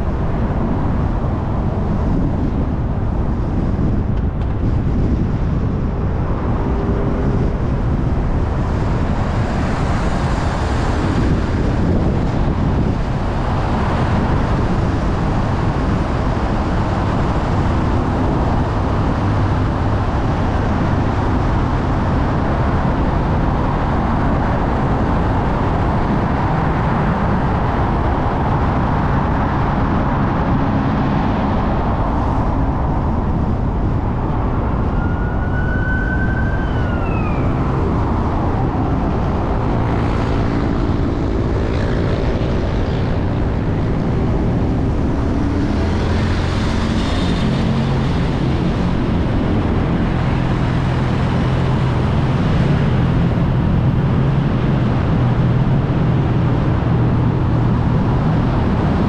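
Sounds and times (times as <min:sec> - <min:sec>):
car engine and tyre noise: 0:00.0 - 0:59.0
surrounding traffic: 0:00.0 - 0:59.0
siren rising: 0:34.4 - 0:39.4.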